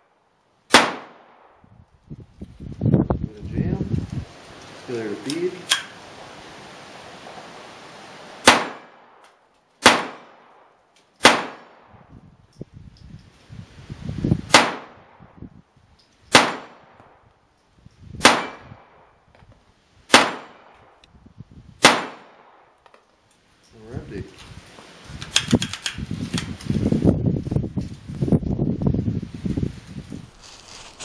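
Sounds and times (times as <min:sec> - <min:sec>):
pistol shots with echo: 0:00.7 - 0:01.6, 0:08.4 - 0:09.2, 0:09.8 - 0:12.0, 0:14.5 - 0:15.0, 0:16.3 - 0:17.0, 0:18.2 - 0:19.1, 0:20.1 - 0:21.0, 0:21.8 - 0:22.7.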